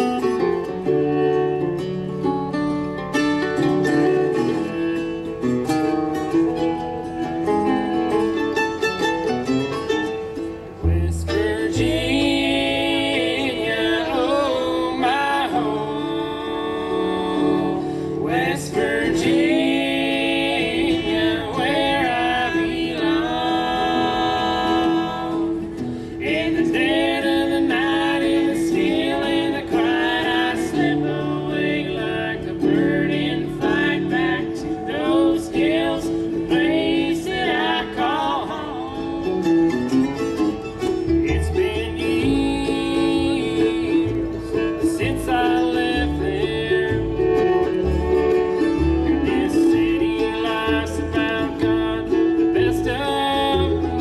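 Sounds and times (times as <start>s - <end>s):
acoustic guitar: 0.0s - 54.0s
fiddle: 0.0s - 54.0s
upright bass: 0.0s - 54.0s
voices singing together: 10.6s - 40.0s, 41.0s - 54.0s.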